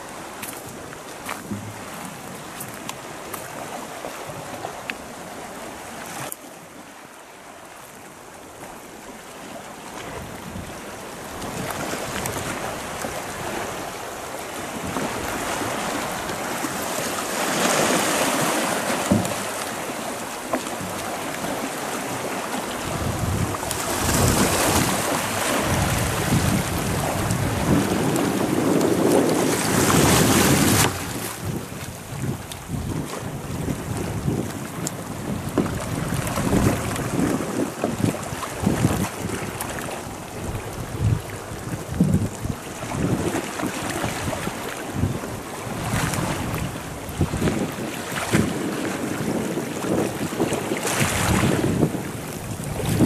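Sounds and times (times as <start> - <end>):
waves washing over stony shore: 0.0 - 53.0
wind buffeting microphone: 20.7 - 53.0.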